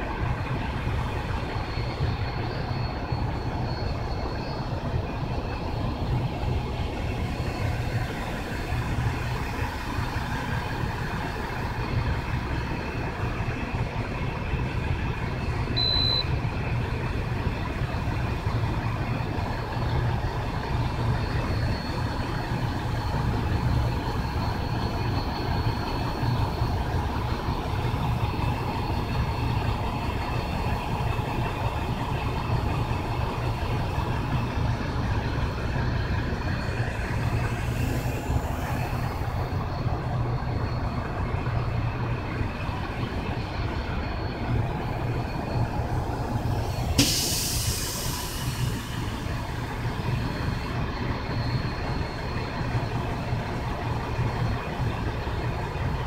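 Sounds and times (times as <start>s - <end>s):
short high beep: 15.8s - 16.3s.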